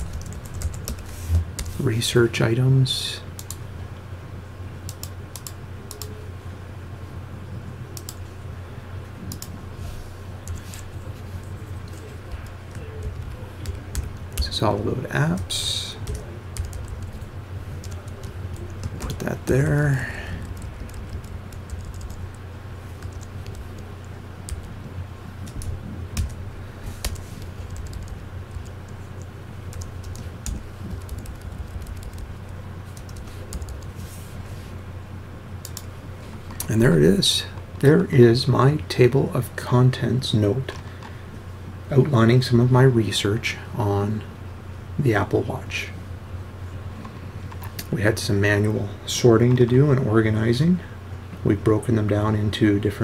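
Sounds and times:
computer keyboard keys clicking: 0:00.0 - 0:01.7, 0:04.9 - 0:06.1, 0:09.3 - 0:09.5, 0:15.4 - 0:17.2, 0:20.4 - 0:22.3, 0:23.0 - 0:23.8, 0:25.4 - 0:26.4, 0:27.0 - 0:28.7, 0:29.7 - 0:32.3, 0:33.0 - 0:33.9
steady low hum: 0:00.0 - 0:53.0.

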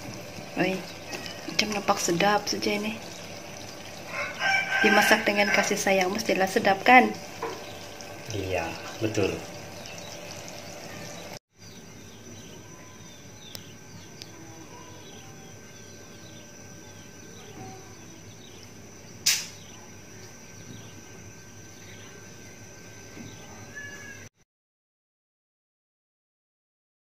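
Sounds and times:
small birds chirping: 0:00.0 - 0:24.3
sharp click: 0:19.2 - 0:19.6.

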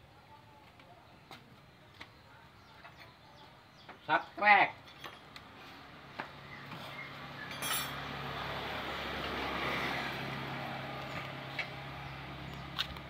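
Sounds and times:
passing vehicle engine: 0:05.5 - 0:13.0
metal tool clinks: 0:07.5 - 0:08.0.

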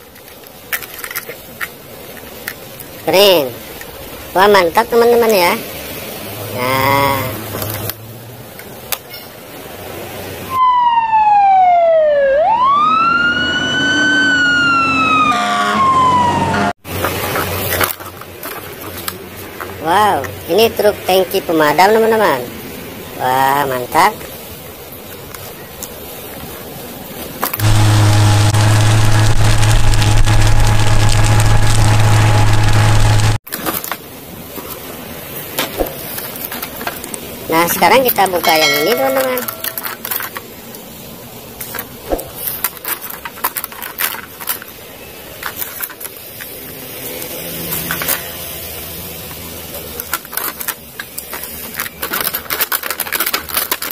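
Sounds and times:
fire engine siren wailing: 0:10.5 - 0:16.8, 0:27.6 - 0:33.4
truck engine droning: 0:27.6 - 0:33.4.

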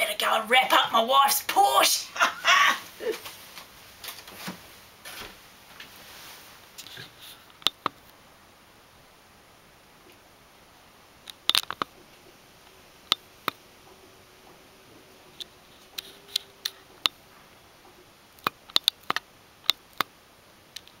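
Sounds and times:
faint steady hum: 0:00.0 - 0:21.0
low steady hiss: 0:00.0 - 0:21.0
sharp clicks and ticks: 0:07.5 - 0:08.1, 0:11.2 - 0:12.0, 0:13.0 - 0:14.6, 0:15.3 - 0:17.2, 0:17.8 - 0:20.1, 0:20.7 - 0:21.0.

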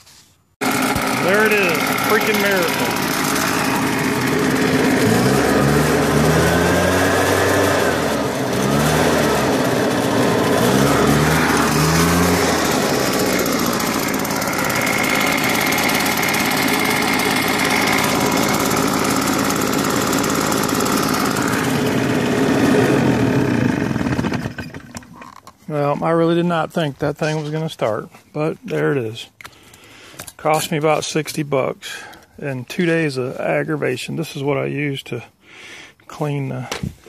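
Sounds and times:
leaf blower engine revving: 0:00.6 - 0:25.3.

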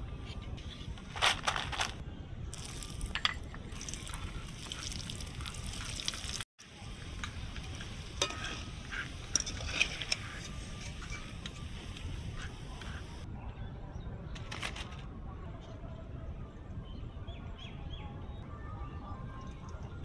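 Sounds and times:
food sizzling in hot oil: 0:02.6 - 0:13.2.

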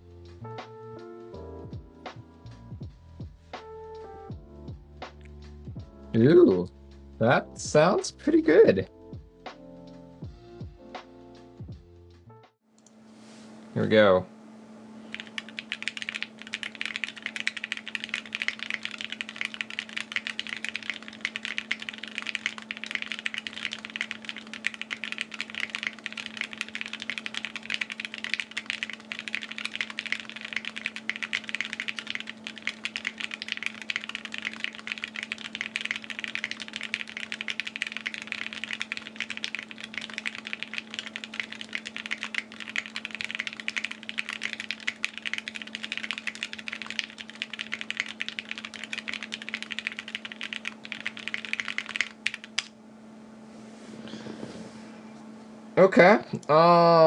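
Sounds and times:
steady low hum: 0:12.8 - 0:57.0
mechanical keyboard typing: 0:15.1 - 0:52.7.

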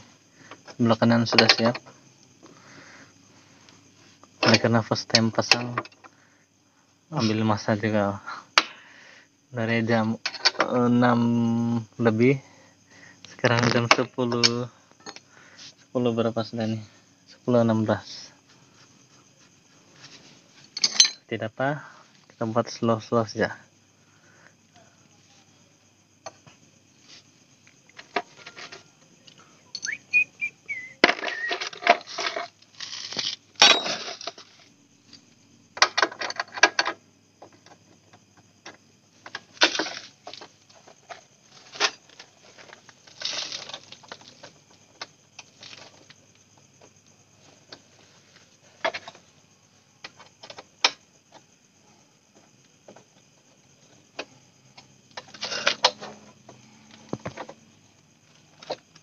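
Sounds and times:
metal parts clinking and rattling: 0:10.2 - 0:10.7, 0:20.7 - 0:21.3, 0:29.7 - 0:30.0, 0:31.0 - 0:35.2, 0:35.8 - 0:37.0.

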